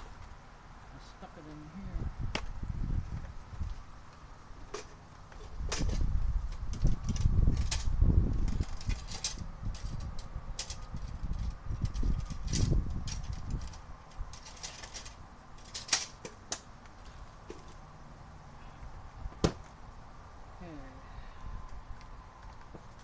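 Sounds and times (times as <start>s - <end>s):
tools rummaged in plastic case: 6.8s - 10.0s, 10.6s - 16.3s.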